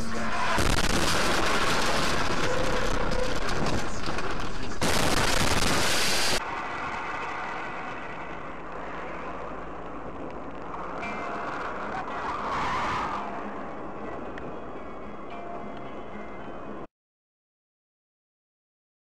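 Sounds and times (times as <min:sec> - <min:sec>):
car driving: 0:00.0 - 0:16.8
vehicle crash crackling and clattering: 0:00.1 - 0:13.4.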